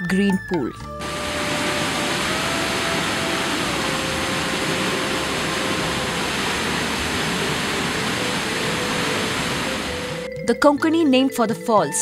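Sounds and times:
waterfall rushing into a pool: 0:01.0 - 0:10.3
faint background music: 0:08.9 - 0:12.0.

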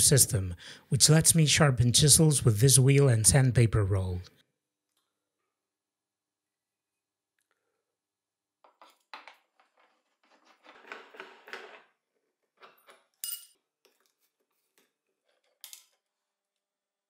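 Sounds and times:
small metal clinks: 0:12.7 - 0:13.6.

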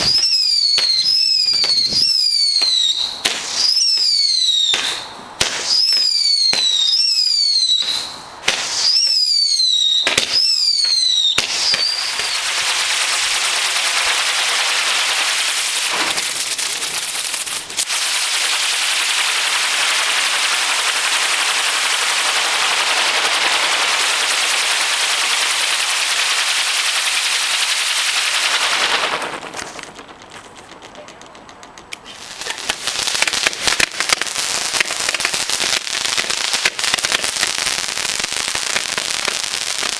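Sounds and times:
crackling pops: 0:00.0 - 0:03.6, 0:15.8 - 0:18.0, 0:28.2 - 0:39.9
firework whistles falling in pitch: 0:00.0 - 0:13.1
firework bangs: 0:00.0 - 0:39.9
firework fountain hissing: 0:00.0 - 0:39.9.

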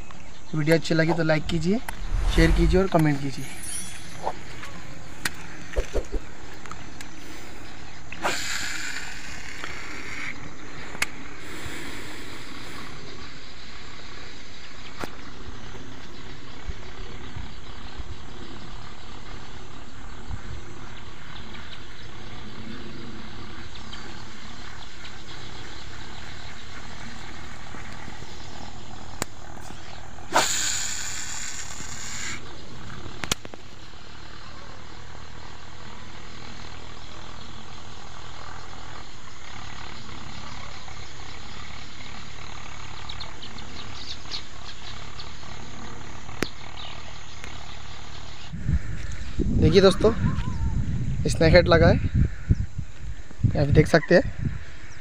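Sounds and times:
hissing whirrs: 0:00.6 - 0:13.6
wind rumble on microphone: 0:01.1 - 0:03.5, 0:48.5 - 0:55.0.

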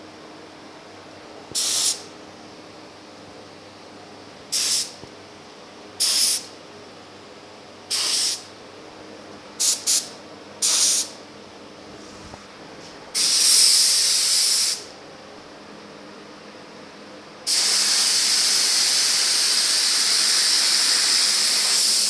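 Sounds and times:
spray gun hissing bursts: 0:01.6 - 0:02.0, 0:04.5 - 0:05.0, 0:06.0 - 0:06.5, 0:07.9 - 0:08.5, 0:09.6 - 0:11.2, 0:13.2 - 0:14.9, 0:17.5 - 0:22.0.

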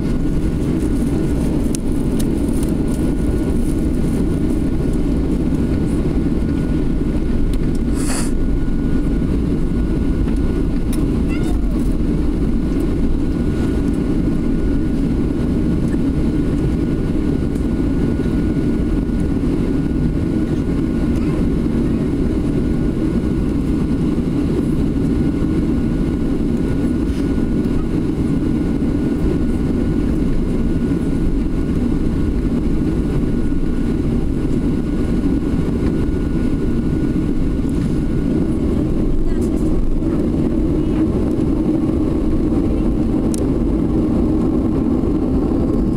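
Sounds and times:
jet engines idling in cabin: 0:00.0 - 0:45.9.

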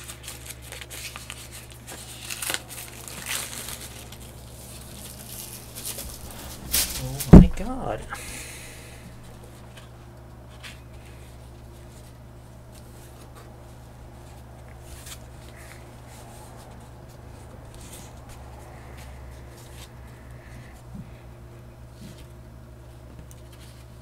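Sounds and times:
card pack rustling and clicking: 0:00.0 - 0:07.3
low hum: 0:00.7 - 0:23.0.

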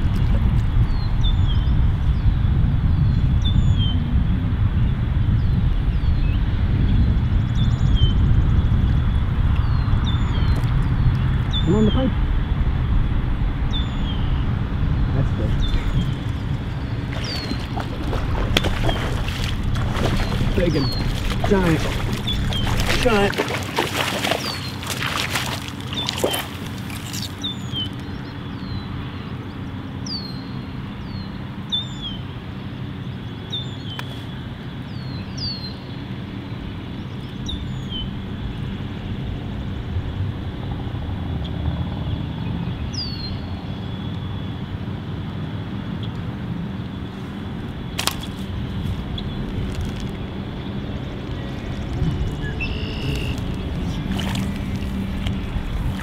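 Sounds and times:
steady low rumble: 0:00.0 - 0:29.0, 0:47.2 - 0:56.0
bird chirping: 0:15.4 - 0:28.9, 0:49.1 - 0:56.0
fish thrashing and splashing: 0:15.7 - 0:27.9, 0:48.0 - 0:56.0.

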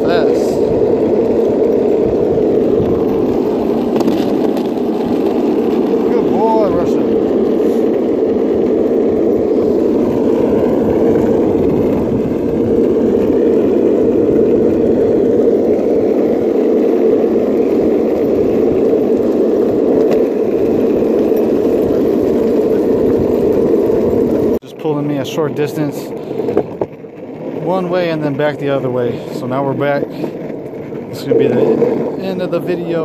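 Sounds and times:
skateboard wheels rolling on asphalt: 0:00.0 - 0:33.0.

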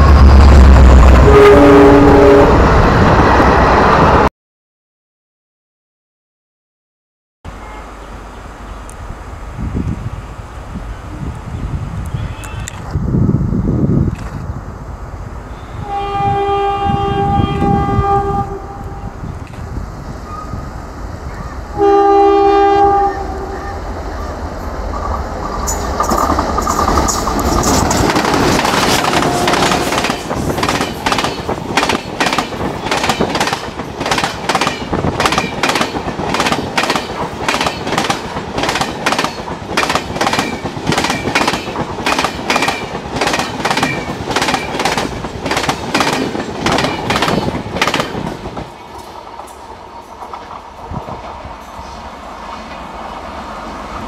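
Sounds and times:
locomotive horn blasts: 0:01.1 - 0:02.6, 0:15.5 - 0:19.2, 0:21.7 - 0:23.8, 0:28.9 - 0:30.1
locomotive engines passing: 0:23.0 - 0:54.0.

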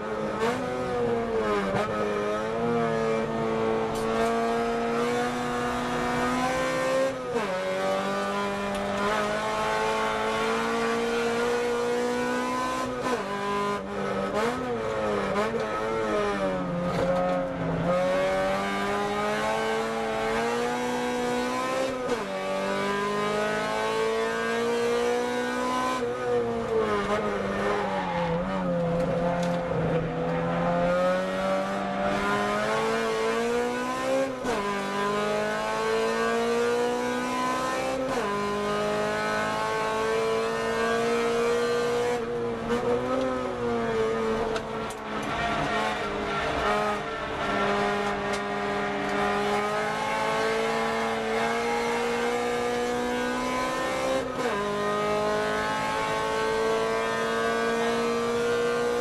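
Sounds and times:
car engine revving: 0:00.1 - 0:59.0.

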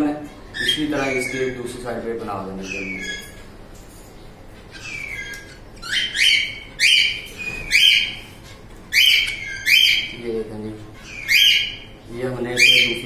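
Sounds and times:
baby bird squawking: 0:00.5 - 0:01.7, 0:02.6 - 0:03.5, 0:04.6 - 0:10.2, 0:11.0 - 0:12.0, 0:12.6 - 0:13.0.

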